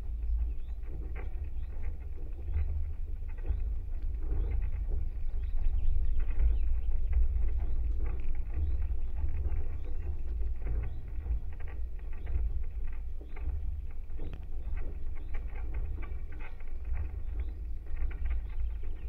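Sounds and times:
deep rumble of wire vibration: 0.0 - 19.0
small creaks and ticks: 0.0 - 19.0.

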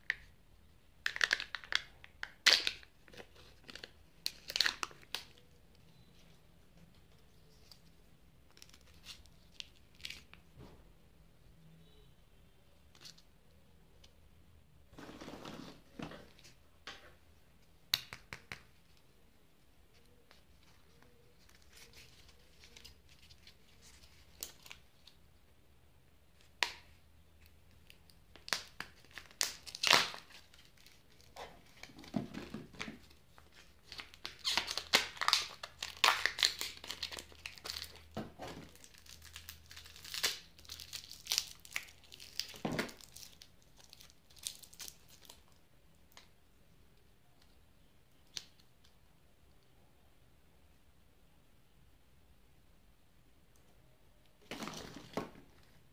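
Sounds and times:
plastic wrapper tearing and crinkling: 1.0 - 5.4, 20.9 - 25.2, 27.8 - 46.2.

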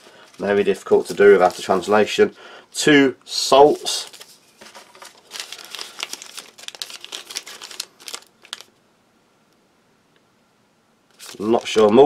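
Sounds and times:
packets crinkling and rustling: 0.0 - 2.1, 3.7 - 8.7, 11.1 - 12.0.

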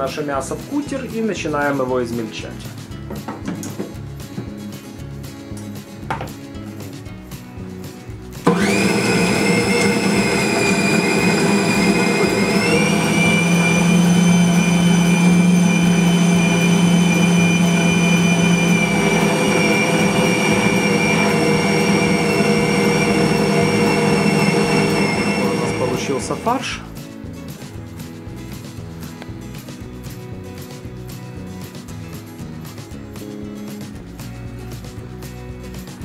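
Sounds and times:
bowl cutter motor whining: 8.5 - 26.6.

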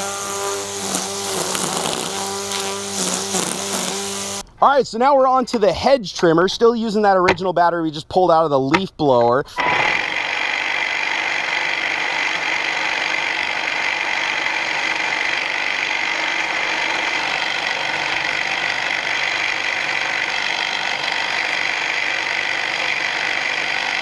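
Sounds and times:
hedge trimmer running: 0.0 - 4.5, 9.6 - 24.0.

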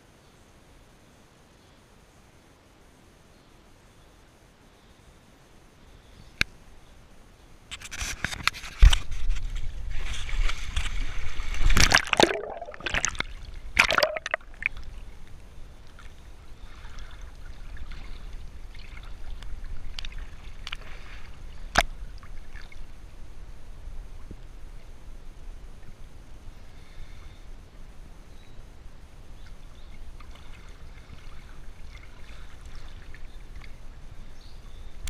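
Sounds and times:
water gently lapping: 8.4 - 23.3, 29.3 - 35.0
pool water splashing: 9.8 - 23.2, 29.5 - 34.2
water gurgling: 9.9 - 23.2.

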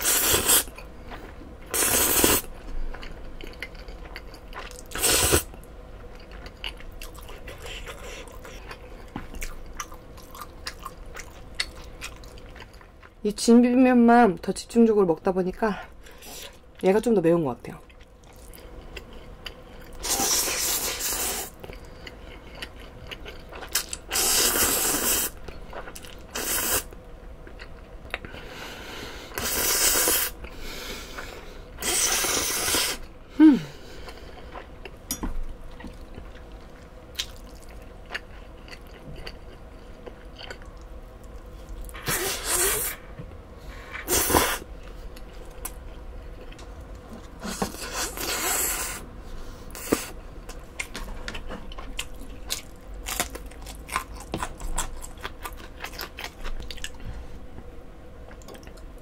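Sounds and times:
quiet chewing: 2.2 - 13.2, 21.0 - 24.6, 35.7 - 42.1, 58.2 - 59.0
person slurping noodles: 42.0 - 43.0.

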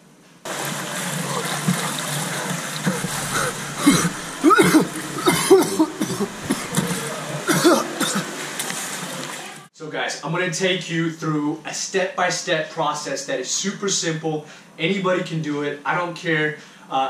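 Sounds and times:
swimmer splashing water: 0.5 - 9.7
person gasping and coughing: 2.8 - 8.2.

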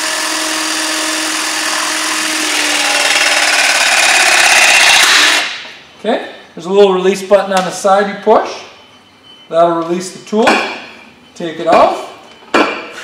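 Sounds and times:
hydraulic tool motor and pump: 0.0 - 5.7.

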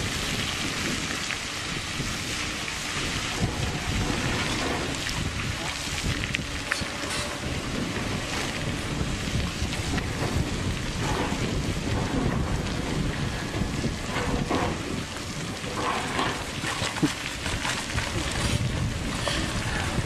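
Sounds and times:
wind noise on microphone: 0.0 - 20.0
rocks knocking and clattering: 13.8 - 19.4.

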